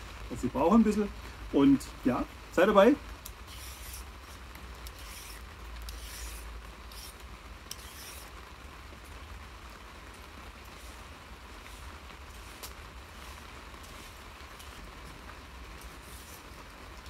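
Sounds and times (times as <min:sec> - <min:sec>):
blade scraping sweet potato skin: 0:03.5 - 0:08.3.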